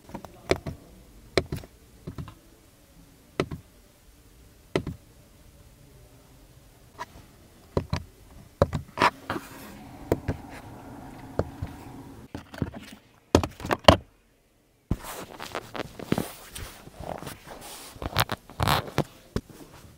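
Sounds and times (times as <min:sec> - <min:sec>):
faint steady hum: 0:00.9 - 0:12.3.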